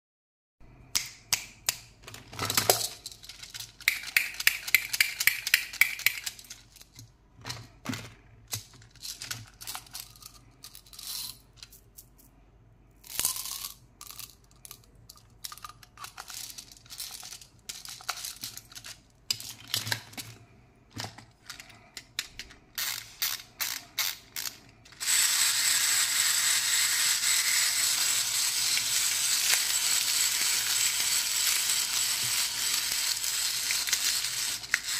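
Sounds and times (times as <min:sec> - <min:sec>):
plastic toys clicking and rattling: 0:01.7 - 0:12.4, 0:13.0 - 0:34.9.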